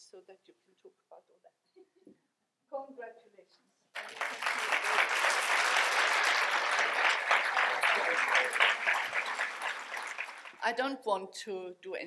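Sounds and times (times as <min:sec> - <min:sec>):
audience applauding: 0:04.0 - 0:10.7.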